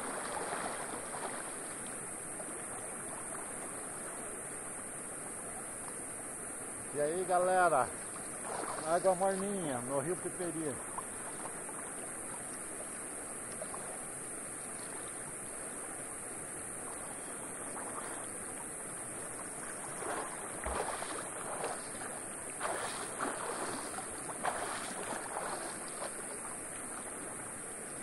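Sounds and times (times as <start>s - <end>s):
water splashing: 0.0s - 4.8s, 6.9s - 28.0s
steady water rush: 0.0s - 28.0s.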